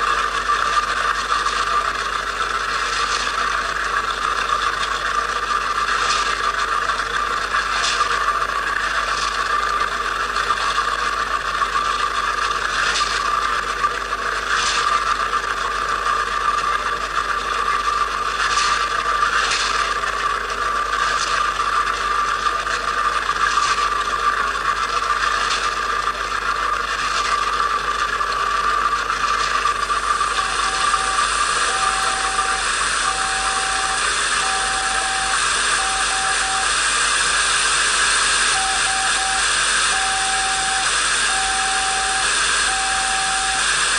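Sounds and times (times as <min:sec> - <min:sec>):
beep pulses: 0:30.3 - 0:36.8, 0:38.4 - 0:43.7.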